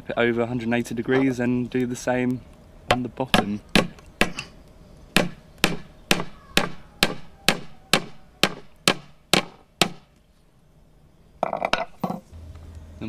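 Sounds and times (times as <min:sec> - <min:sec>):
hammer striking staple into wood: 0:05.2 - 0:10.1.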